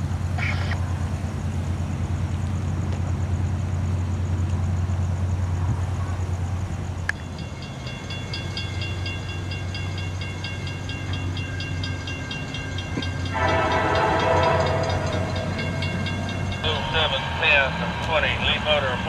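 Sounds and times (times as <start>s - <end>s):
crossing warning bells ringing: 7.1s - 19.0s
locomotive horn: 13.0s - 19.0s.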